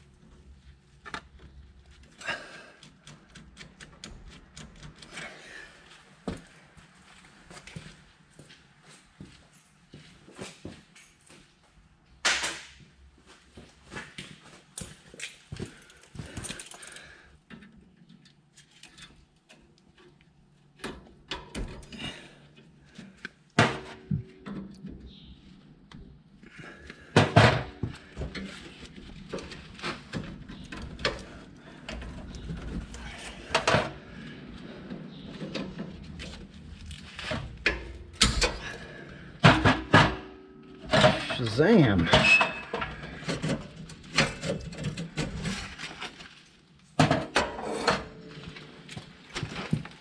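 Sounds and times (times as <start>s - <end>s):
metal clanks of hand tools: 42.0s - 45.4s.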